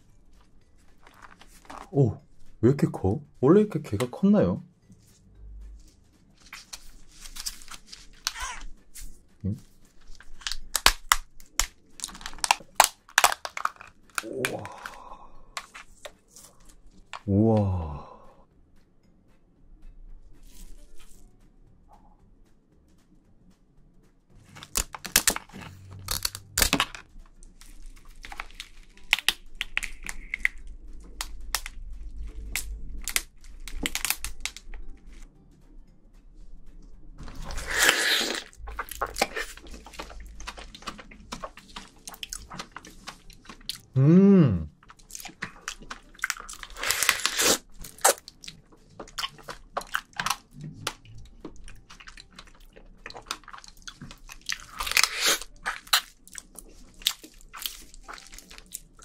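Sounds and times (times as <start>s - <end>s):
crab shell cracking and crunching: 0.4s - 2.0s, 6.4s - 17.3s, 24.5s - 35.3s, 37.2s - 43.9s, 44.7s - 59.0s
wet sucking slurps: 37.4s - 41.9s, 46.7s - 48.2s.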